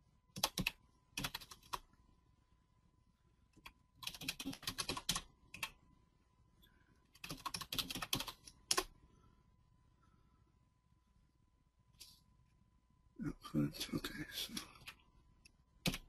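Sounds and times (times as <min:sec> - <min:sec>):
typing on computer keyboard: 0:00.4 - 0:01.9, 0:03.6 - 0:05.8, 0:07.1 - 0:08.9.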